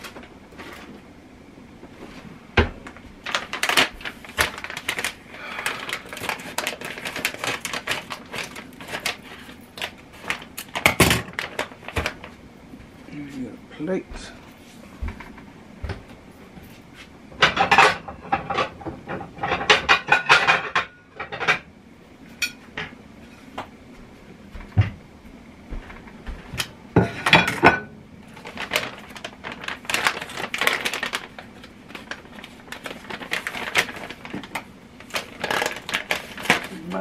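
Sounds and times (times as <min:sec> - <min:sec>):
utensils clattering against dishes: 0:17.4 - 0:21.7, 0:27.0 - 0:27.9, 0:35.1 - 0:36.7.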